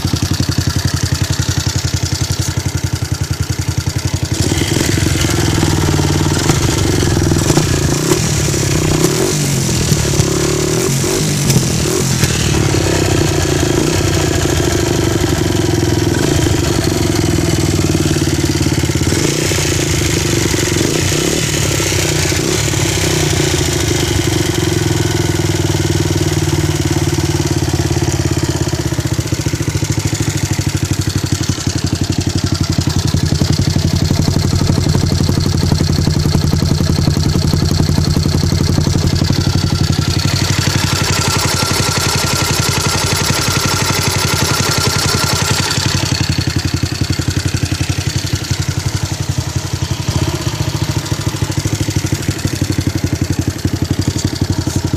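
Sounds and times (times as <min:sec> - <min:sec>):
motorcycle engine idling: 0:00.0 - 0:54.9.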